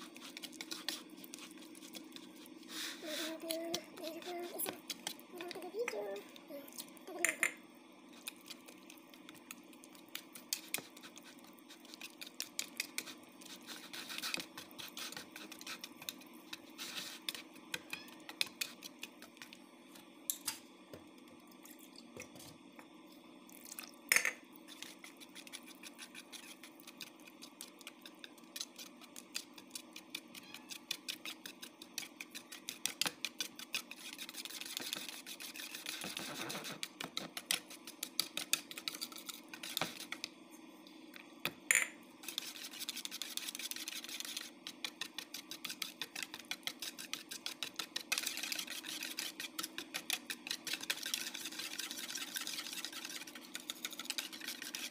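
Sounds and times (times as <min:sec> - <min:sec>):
whisk clicking against bowl: 0:08.5 - 0:13.2, 0:17.2 - 0:19.6, 0:24.7 - 0:40.3, 0:42.2 - 0:54.9.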